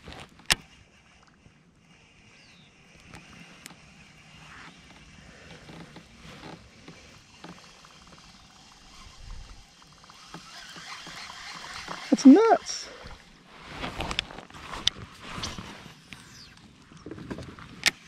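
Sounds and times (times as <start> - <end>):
fishing reel being cranked: 0.5 - 13.3
rapid reel ticks: 6.7 - 12.2.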